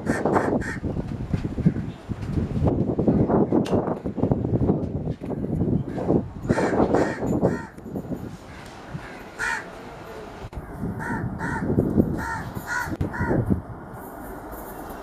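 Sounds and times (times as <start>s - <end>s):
crows cawing: 0.0s - 0.8s, 6.5s - 7.8s, 8.5s - 9.7s, 10.6s - 13.4s.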